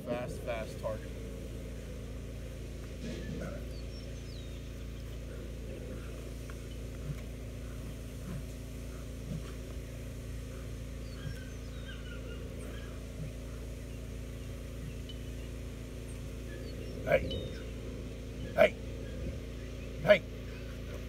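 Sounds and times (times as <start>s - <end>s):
outdoor background noise: 0.0s - 21.0s
faint bird chirps: 3.1s - 21.0s
puppy grunting: 5.2s - 9.8s, 16.3s - 17.8s.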